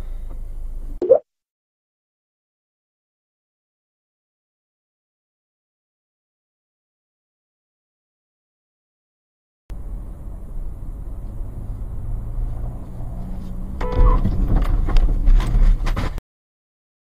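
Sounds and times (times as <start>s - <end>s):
car engine and road rumble: 0.0s - 1.0s, 9.7s - 16.2s
car horn blast: 13.8s - 14.4s.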